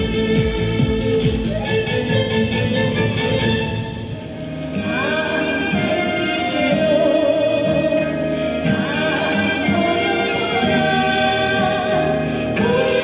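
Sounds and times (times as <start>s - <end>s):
bowed fiddle: 0.0s - 13.0s
violin: 0.0s - 13.0s
flute: 1.0s - 3.6s, 4.8s - 8.1s
woman singing long held notes: 4.8s - 13.0s.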